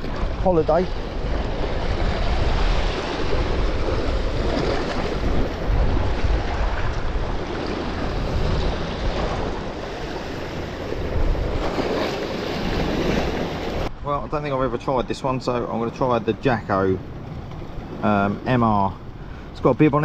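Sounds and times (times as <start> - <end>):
sea washing against rocks: 0.0 - 13.9
wind buffeting microphone: 0.0 - 20.0.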